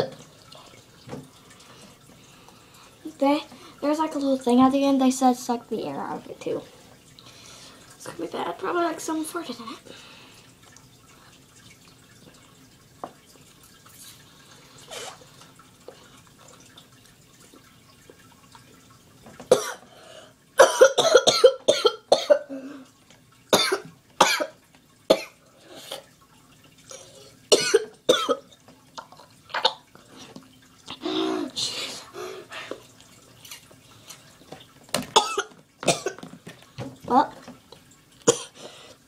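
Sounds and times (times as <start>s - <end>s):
boy coughing: 20.6s - 22.6s, 23.6s - 24.5s, 27.5s - 28.4s, 35.2s - 36.2s.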